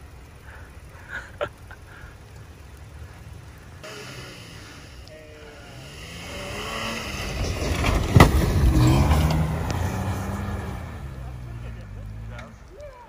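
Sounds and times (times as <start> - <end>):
truck engine revving: 0.0 - 13.0
tyres churning snow: 0.0 - 13.0
sharp crack: 3.6 - 13.0.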